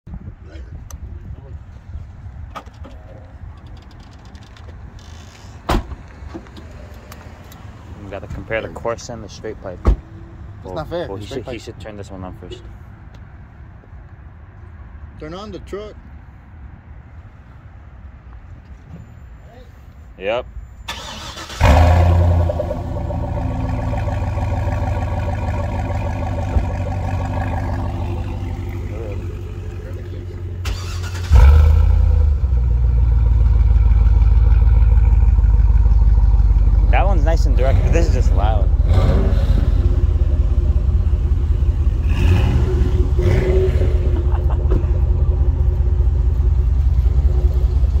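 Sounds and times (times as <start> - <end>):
car engine idling: 21.0 - 39.0, 44.2 - 48.0.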